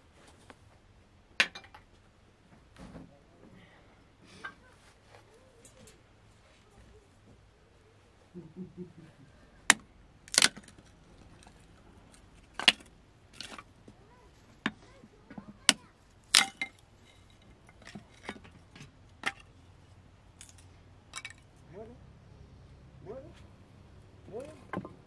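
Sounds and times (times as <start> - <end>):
sharp knocks and cracks: 9.7 - 14.0, 14.6 - 19.6.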